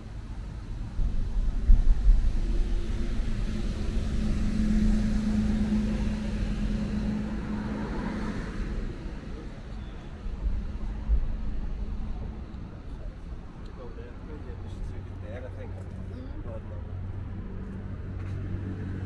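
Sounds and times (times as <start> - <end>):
low rumble of traffic: 0.0 - 19.0
vehicle engine passing by: 2.2 - 9.8, 16.8 - 19.0.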